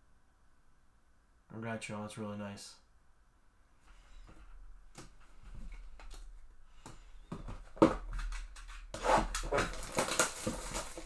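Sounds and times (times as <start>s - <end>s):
cardboard box rustling: 7.5s - 11.0s.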